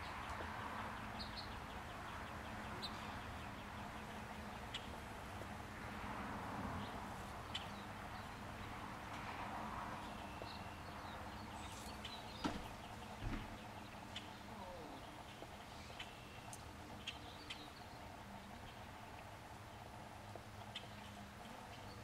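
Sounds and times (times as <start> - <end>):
low thump: 12.4 - 13.6.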